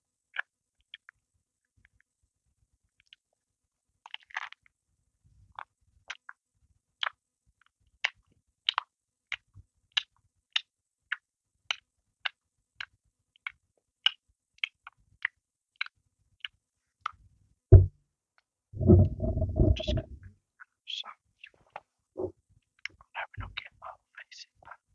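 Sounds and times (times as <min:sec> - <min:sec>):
person chewing crusty bread: 0:04.1 - 0:04.7
low thump: 0:17.7 - 0:18.0, 0:18.8 - 0:20.3.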